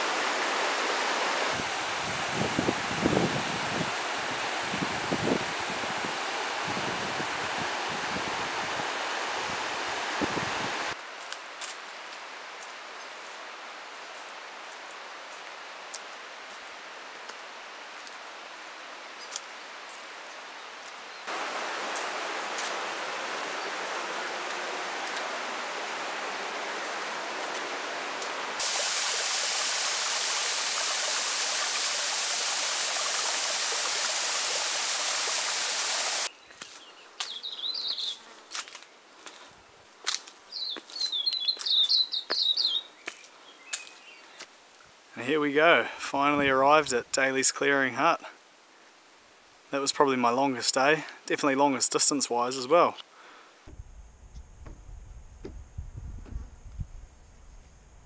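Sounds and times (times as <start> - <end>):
stream water rushing: 0.0 - 20.3, 20.9 - 36.3.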